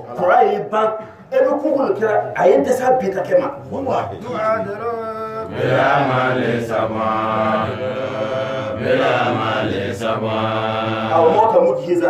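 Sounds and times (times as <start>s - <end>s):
man chanting melodically: 3.5s - 8.4s, 10.6s - 12.0s.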